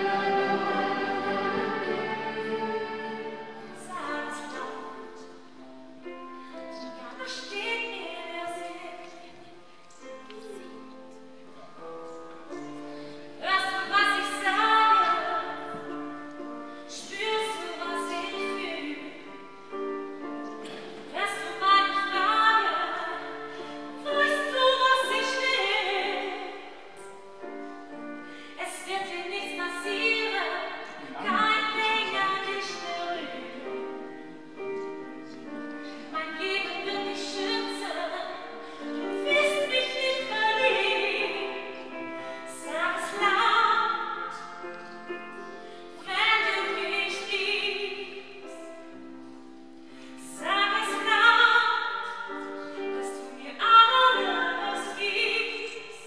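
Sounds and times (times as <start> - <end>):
operatic singing: 0.0 - 4.4
sustained instrumental accompaniment: 0.0 - 6.6.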